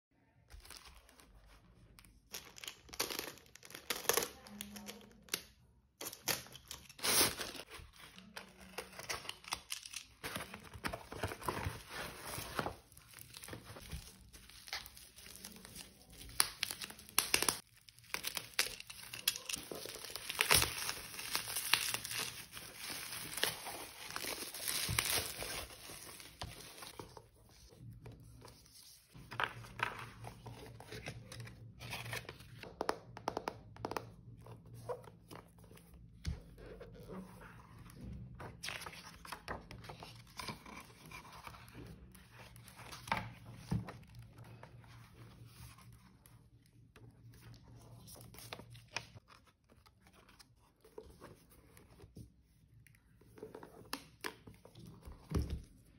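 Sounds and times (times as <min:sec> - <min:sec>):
plastic packaging crinkling and tearing: 0:00.5 - 0:05.4, 0:06.0 - 0:27.3.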